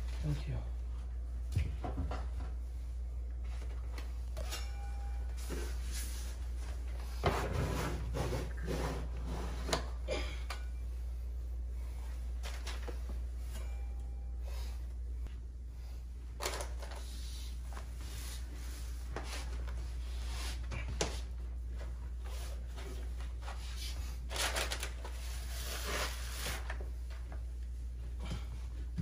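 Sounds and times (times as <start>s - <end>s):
steady low hum: 0.0s - 29.0s
paper rustling and crinkling: 16.4s - 17.9s, 22.3s - 27.5s
crumpled paper crackling: 24.2s - 26.8s.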